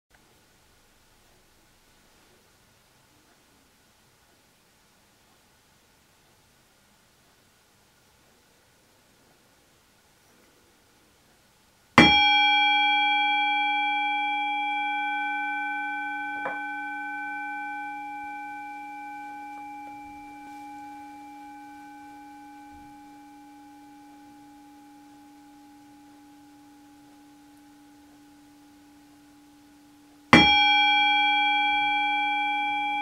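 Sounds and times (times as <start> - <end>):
singing bowl ringing: 12.0 - 33.0.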